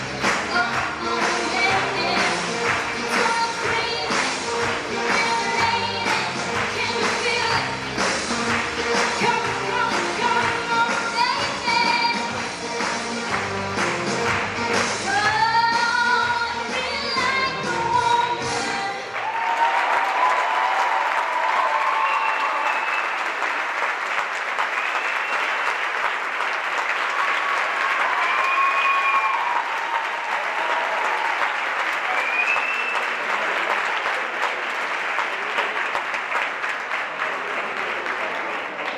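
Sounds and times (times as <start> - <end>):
audience applauding: 0.0 - 15.4, 19.0 - 38.9.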